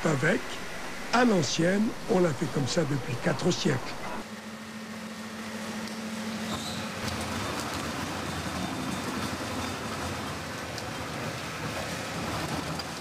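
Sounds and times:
millstone grinding rumble: 7.0 - 13.0.

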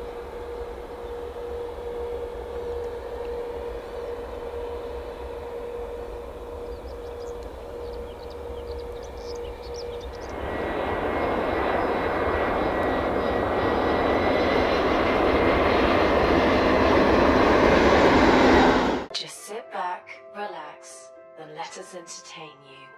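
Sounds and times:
high engine whine: 0.0 - 19.1
jet engines roaring: 0.0 - 19.1
birds chirping: 6.1 - 10.4.

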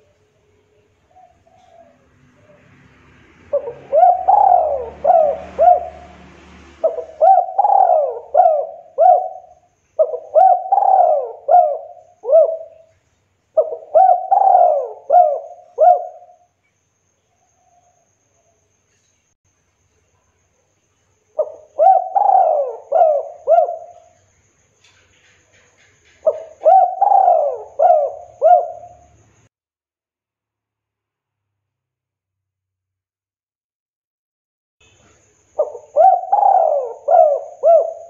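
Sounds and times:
dove cooing: 1.1 - 2.7, 3.5 - 13.0, 13.6 - 16.4, 21.4 - 24.2, 26.2 - 29.2, 35.6 - 38.0.

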